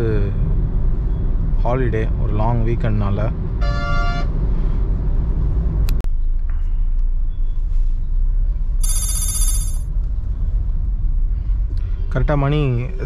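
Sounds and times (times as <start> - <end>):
road and engine rumble in car: 0.0 - 8.8, 9.9 - 13.0
high warbling electronic tone: 8.8 - 9.8.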